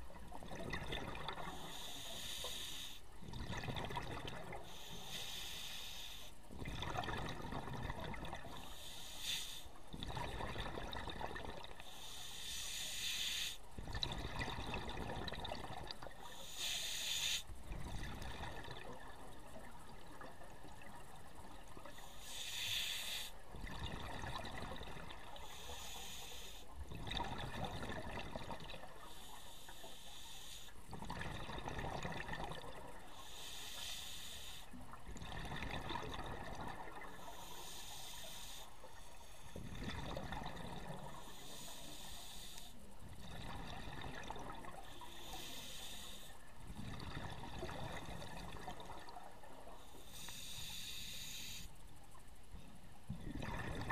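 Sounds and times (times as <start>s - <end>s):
exhaled bubbles gurgling: 0.0s - 2.5s, 3.1s - 5.0s, 6.5s - 9.0s, 9.7s - 12.2s, 13.7s - 16.9s, 17.5s - 22.1s, 23.3s - 29.8s, 30.8s - 33.6s, 34.7s - 49.8s, 52.3s - 53.9s
regulator inhale hiss: 1.4s - 3.1s, 4.6s - 6.5s, 8.5s - 9.8s, 11.8s - 13.8s, 16.2s - 17.6s, 21.8s - 23.4s, 25.3s - 26.8s, 29.0s - 30.9s, 33.1s - 34.8s, 37.1s - 39.7s, 41.0s - 43.0s, 44.8s - 46.6s, 49.7s - 52.0s.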